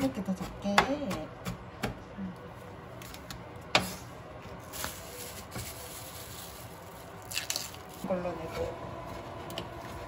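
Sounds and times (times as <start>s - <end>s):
plastic bag rustling: 4.5s - 8.1s.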